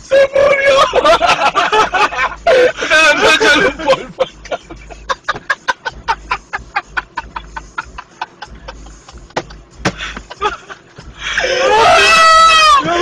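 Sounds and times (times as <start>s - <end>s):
person laughing hard: 0.6s - 13.0s.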